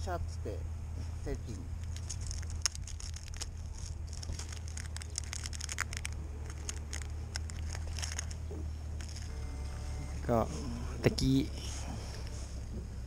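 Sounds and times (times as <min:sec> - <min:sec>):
steady low hum: 0:00.0 - 0:13.0
plastic package crinkling: 0:01.8 - 0:09.3.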